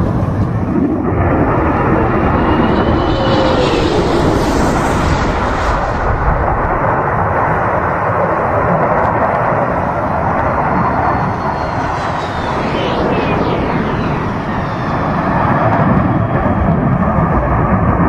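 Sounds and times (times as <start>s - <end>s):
fighter jet flying past: 0.0s - 18.0s.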